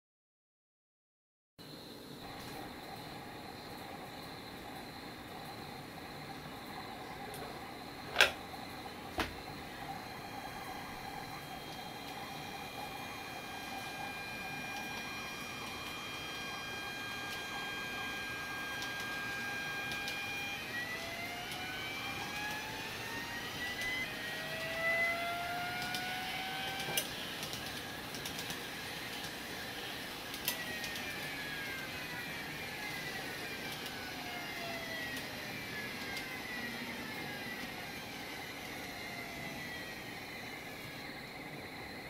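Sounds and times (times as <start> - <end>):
model train motor inverter tones: 2.2 - 42.0
sharp clicks: 25.8 - 28.6, 30.3 - 31.2.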